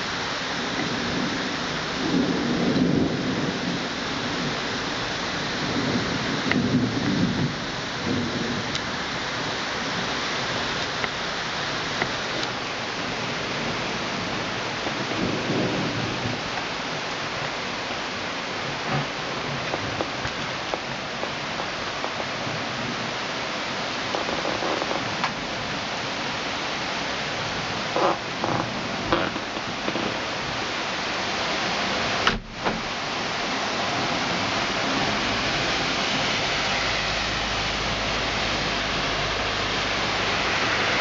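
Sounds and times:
heavy rain pouring: 0.0s - 41.0s
raindrops ticking on surfaces: 0.0s - 41.0s
low rumbles of thunder: 0.9s - 9.0s, 13.2s - 17.0s.

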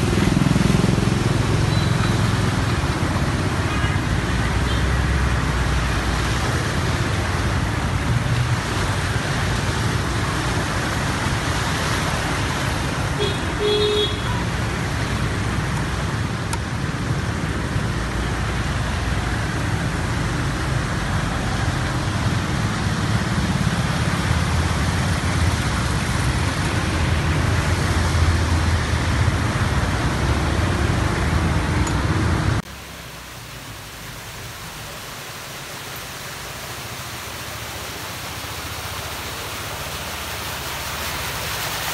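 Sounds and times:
engines rumbling: 0.0s - 41.9s
rush of water and rain: 0.0s - 41.9s
steady hiss of water: 0.0s - 41.9s
car horn toot: 13.2s - 14.4s.

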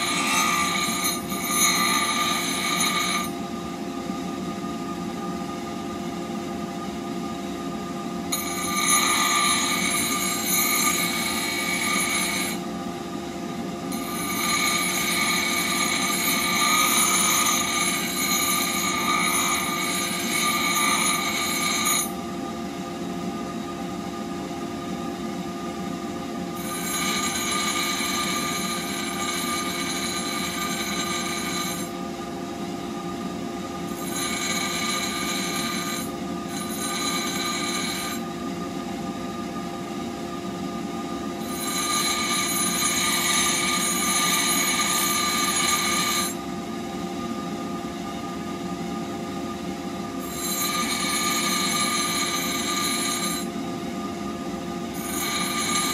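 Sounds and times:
grinder motor hum: 0.0s - 3.4s, 26.6s - 31.9s, 33.9s - 38.2s, 55.0s - 55.9s
high-pitched grinding whine: 0.0s - 55.9s.

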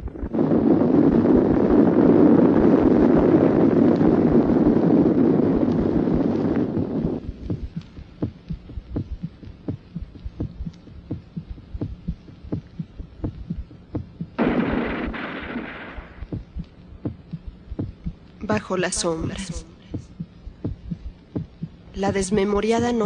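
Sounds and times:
low rushing noise: 0.0s - 18.3s
heartbeat thumps: 0.0s - 23.0s.

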